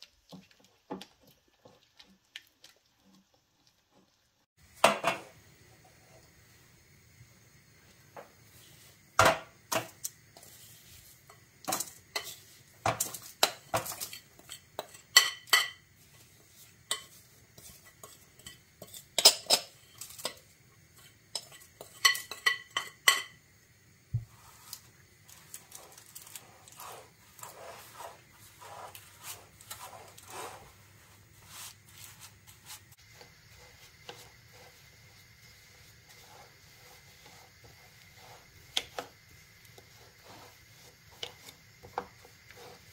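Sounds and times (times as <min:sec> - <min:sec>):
metal spoon scraping glass bowl: 0:12.1 - 0:12.4
spoon tapping in metal cake tin: 0:21.3 - 0:23.4.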